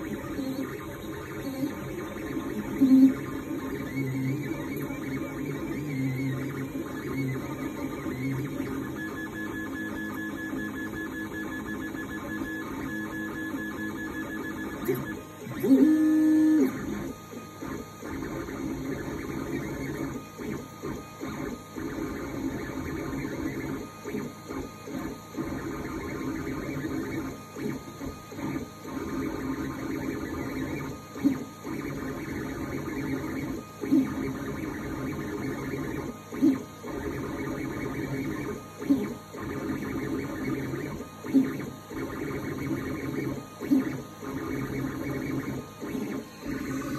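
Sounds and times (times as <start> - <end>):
printer stepper motors whining: 0.0 - 46.9.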